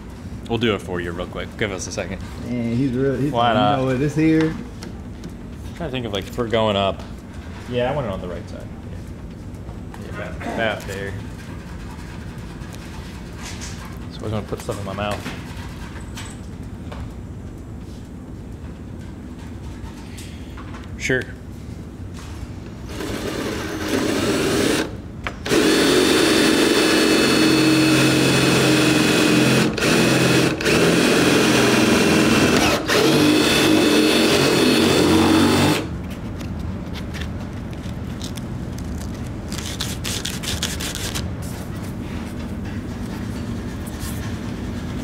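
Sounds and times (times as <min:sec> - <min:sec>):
cordless drill boring: 0:22.9 - 0:35.9.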